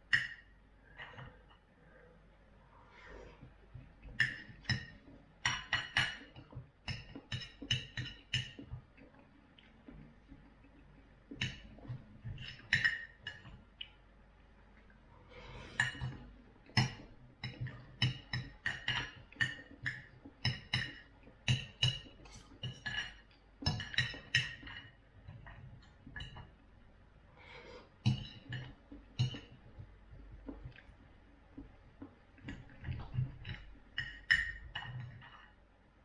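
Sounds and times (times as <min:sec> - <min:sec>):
cutlery clinking on a plate: 0:32.8 - 0:35.4.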